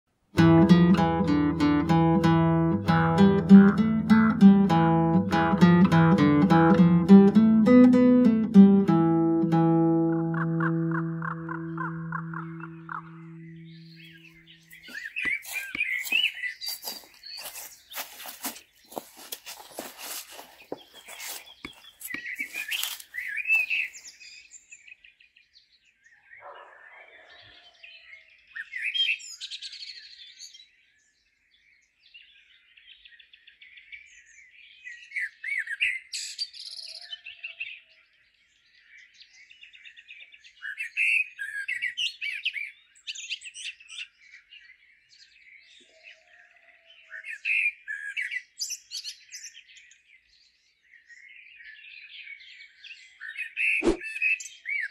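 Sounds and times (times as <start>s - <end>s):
songbirds chirping: 0.4s - 54.9s
dry leaves crunching underfoot: 14.7s - 24.1s.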